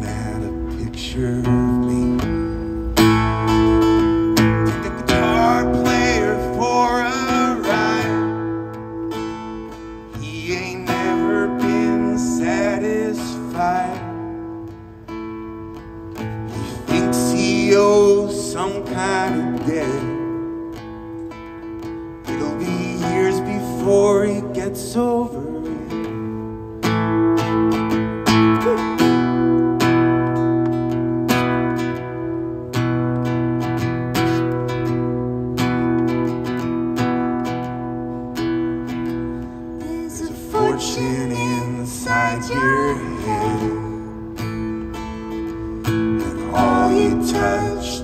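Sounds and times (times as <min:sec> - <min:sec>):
acoustic guitar strumming: 0:00.0 - 0:48.0
person singing: 0:04.5 - 0:08.6, 0:28.5 - 0:29.4, 0:39.8 - 0:44.3, 0:46.2 - 0:48.0.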